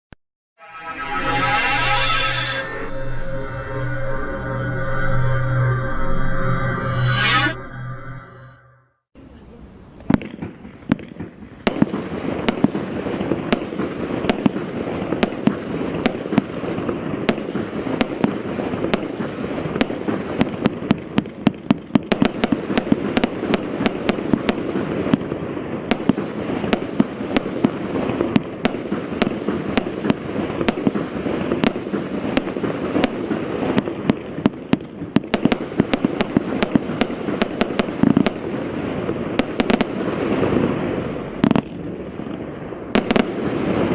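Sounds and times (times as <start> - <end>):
firework bangs: 10.0 - 43.9.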